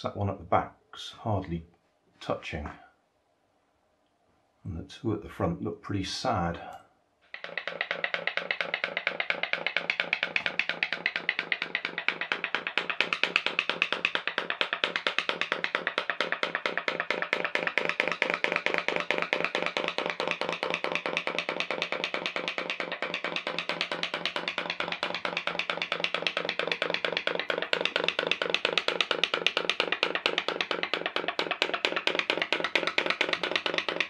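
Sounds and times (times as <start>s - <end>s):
pop-pop boat popping: 7.8s - 34.0s.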